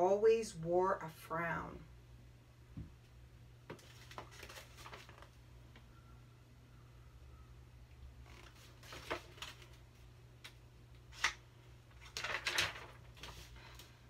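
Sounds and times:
book pages turning: 3.7 - 5.4, 8.3 - 13.9.

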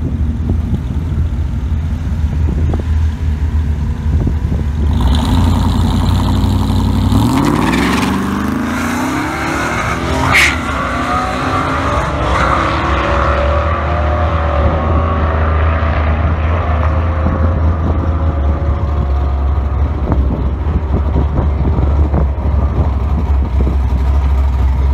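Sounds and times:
steady low rumble: 0.0 - 7.2, 16.1 - 24.9
drag racing engines at full throttle: 0.0 - 24.9.

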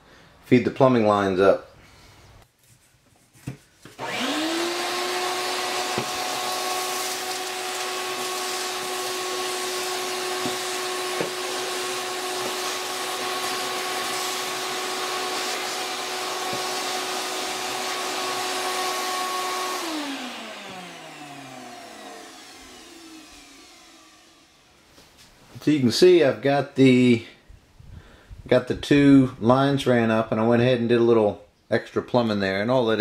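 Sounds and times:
shop vacuum whining: 3.8 - 25.3.

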